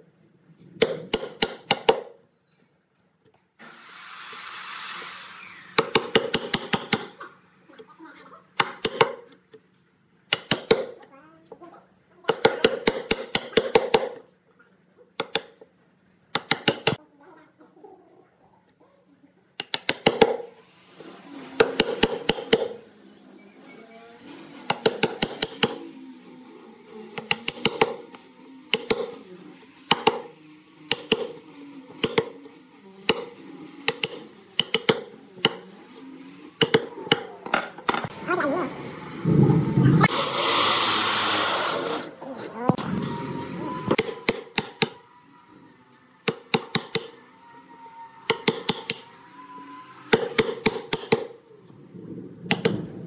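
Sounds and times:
chisel hammered into wood: 0.8s - 2.1s, 12.3s - 14.2s, 16.3s - 17.0s, 19.6s - 20.4s, 30.9s - 31.3s, 33.1s - 35.6s, 44.0s - 45.0s, 46.2s - 47.1s, 48.3s - 49.0s, 50.1s - 51.3s.

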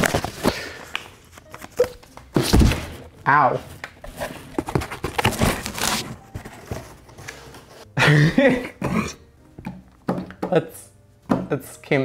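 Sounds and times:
cardboard box rustling and knocking: 4.1s - 7.2s.

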